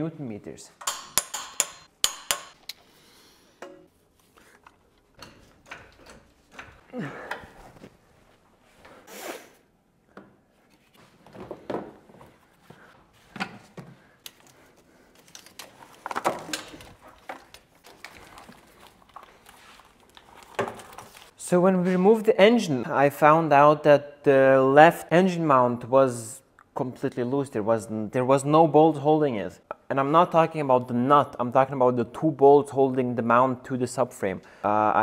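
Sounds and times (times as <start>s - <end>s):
tools and metal parts clinking: 0.8s - 2.6s.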